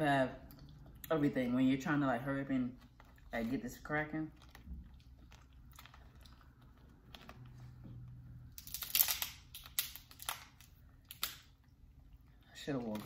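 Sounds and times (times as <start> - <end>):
crab shell cracking: 8.6 - 11.8.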